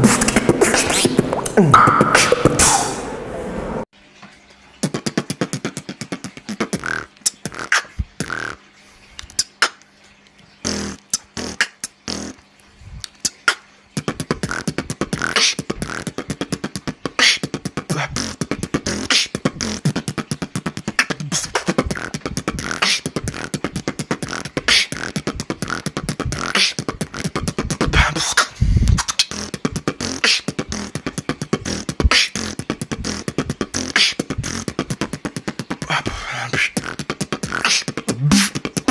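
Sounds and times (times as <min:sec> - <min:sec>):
beatboxing into microphone: 0:00.0 - 0:03.2, 0:04.8 - 0:09.9, 0:10.6 - 0:38.9.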